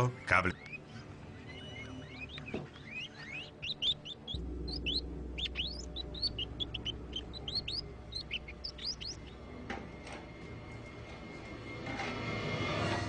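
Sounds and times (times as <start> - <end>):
dense high-pitched chirping: 0.0 - 9.6
background music low drone: 0.0 - 13.0.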